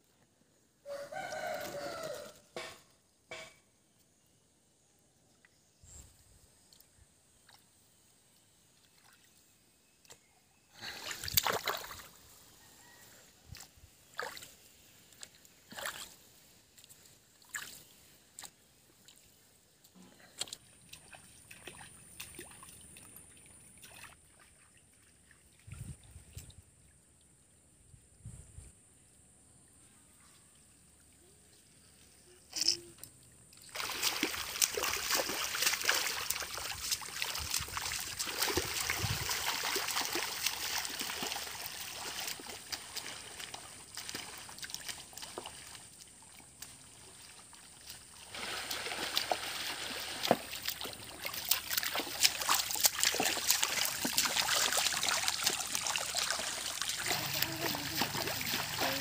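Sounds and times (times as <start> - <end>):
muddy water sloshing and splashing: 8.7 - 26.7, 30.9 - 59.0.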